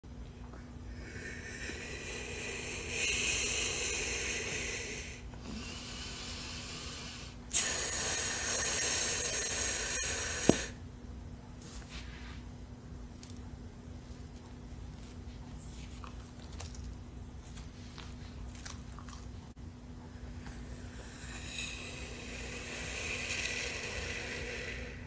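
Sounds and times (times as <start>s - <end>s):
breathy hissing of air: 0.9s - 10.8s, 20.2s - 25.0s.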